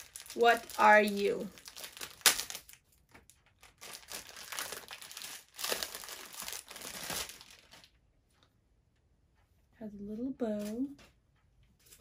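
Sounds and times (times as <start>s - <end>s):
packaging crinkling and rustling: 0.0s - 8.0s.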